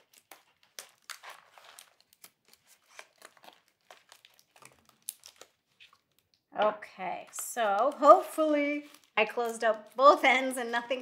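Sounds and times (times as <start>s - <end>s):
tape and paper crinkling: 0.0s - 6.4s, 7.0s - 11.0s.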